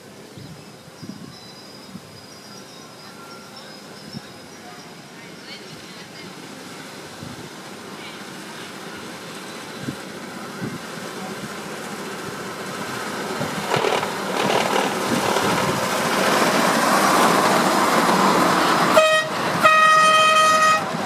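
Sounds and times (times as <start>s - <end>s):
miniature train running on track: 2.4s - 21.0s
train horn: 18.9s - 21.0s.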